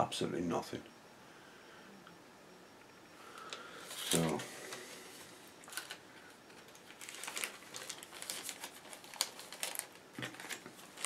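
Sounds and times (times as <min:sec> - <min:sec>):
plastic bag crinkling: 0:05.6 - 0:11.0.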